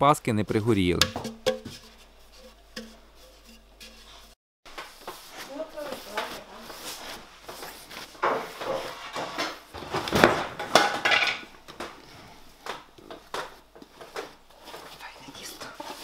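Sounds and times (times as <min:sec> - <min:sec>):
baking tins clattering and knocking: 0:01.0 - 0:04.3, 0:08.2 - 0:12.0.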